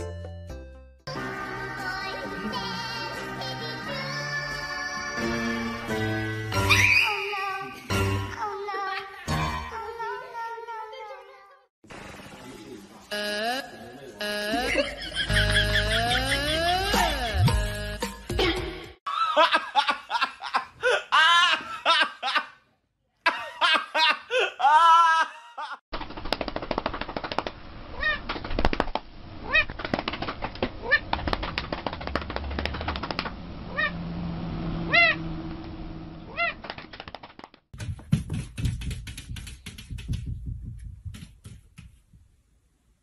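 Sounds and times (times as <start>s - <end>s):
music: 0.0s - 6.9s, 7.6s - 8.5s, 15.6s - 19.0s
high rising-and-falling cries: 33.6s - 36.6s
cat meowing: 33.7s - 34.0s, 34.9s - 35.2s.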